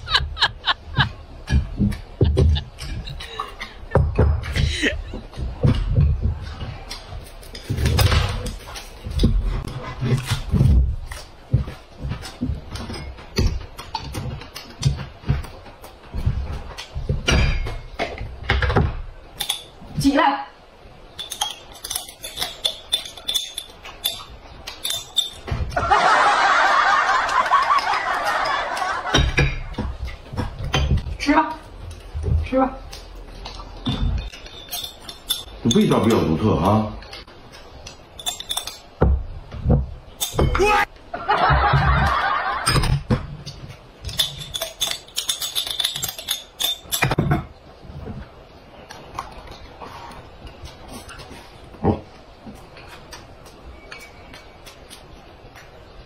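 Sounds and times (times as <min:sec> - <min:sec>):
loud laughter: 0:00.0 - 0:01.2, 0:25.8 - 0:29.2, 0:41.2 - 0:42.8
tableware and glass jar clinking: 0:05.9 - 0:15.0, 0:21.2 - 0:25.6, 0:33.4 - 0:36.3, 0:38.2 - 0:38.9, 0:40.2 - 0:40.8, 0:41.9 - 0:47.5
chopsticks clinking in glass jar: 0:21.2 - 0:25.4, 0:33.9 - 0:36.3, 0:38.2 - 0:38.9, 0:44.1 - 0:47.2.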